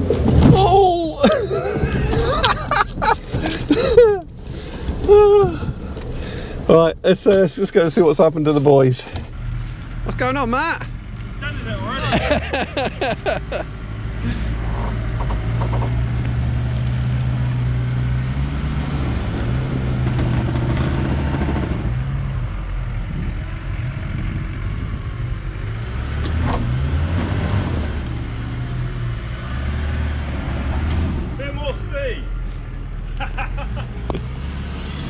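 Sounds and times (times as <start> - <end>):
off-road vehicle engine revving: 9.3 - 31.5, 32.4 - 35.0.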